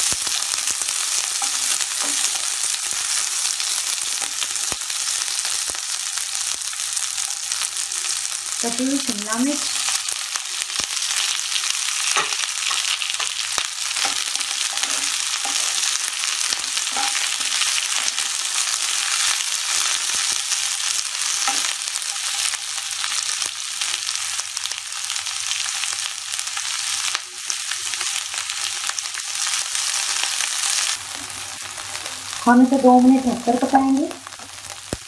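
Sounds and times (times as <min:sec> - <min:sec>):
vegetables sizzling in hot oil: 0:00.0 - 0:35.0
spatula scraping and tapping pan: 0:12.1 - 0:18.2, 0:21.4 - 0:22.5.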